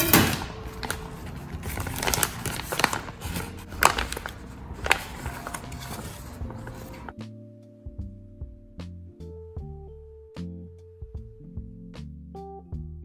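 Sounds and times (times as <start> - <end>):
plastic packaging crinkling: 0.0 - 7.1
sharp plastic crackles: 0.0 - 7.1.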